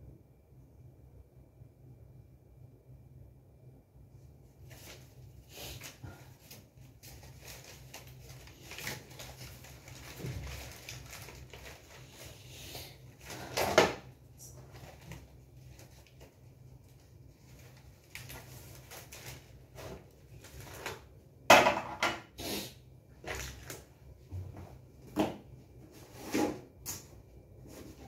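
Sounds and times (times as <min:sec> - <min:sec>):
paper sheets rustling: 0:04.7 - 0:12.4, 0:14.6 - 0:21.1.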